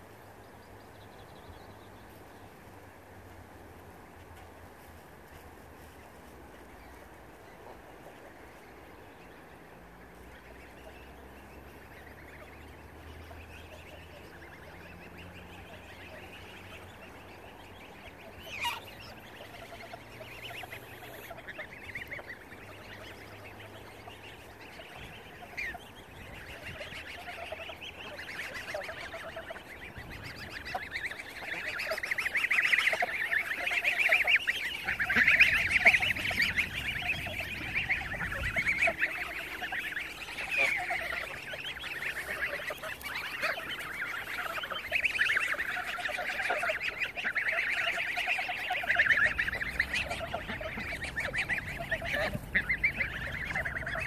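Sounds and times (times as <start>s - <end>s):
geese honking: 4.3s - 54.0s.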